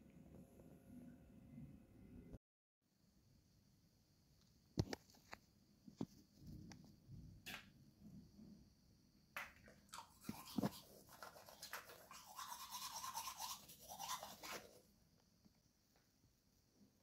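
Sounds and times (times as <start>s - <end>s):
fast scrubbing strokes: 10.2s - 14.8s.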